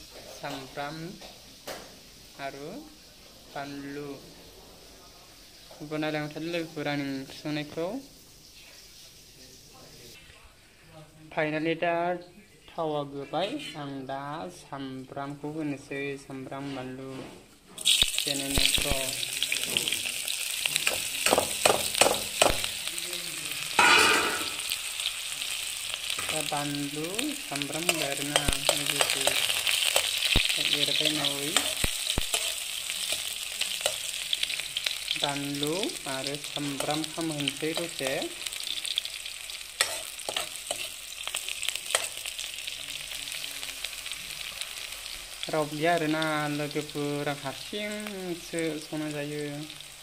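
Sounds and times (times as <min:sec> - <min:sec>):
food sizzling in a pan: 0:00.0 - 0:12.0, 0:13.0 - 0:50.0.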